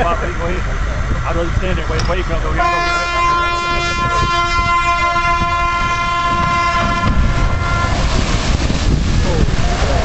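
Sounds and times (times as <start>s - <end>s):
rush of water: 0.0s - 10.0s
ship horn long steady note: 2.5s - 8.1s.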